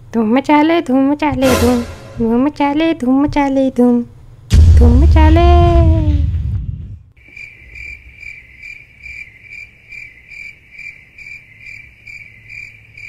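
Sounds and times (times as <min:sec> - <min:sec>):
cricket chirping: 0:07.2 - 0:13.0.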